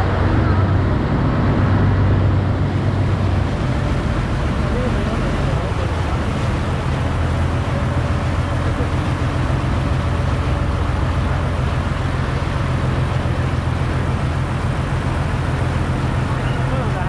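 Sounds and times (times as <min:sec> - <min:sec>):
wind noise: 0:00.0 - 0:04.9
ferry engine droning: 0:00.0 - 0:17.0
water noise: 0:00.0 - 0:17.0.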